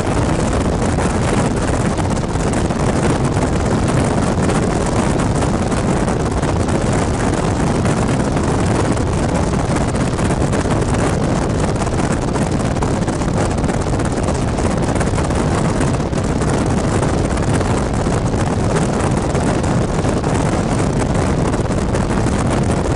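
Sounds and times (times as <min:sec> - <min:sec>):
car road noise: 0:00.0 - 0:22.9
wind rushing over microphone: 0:00.0 - 0:22.9.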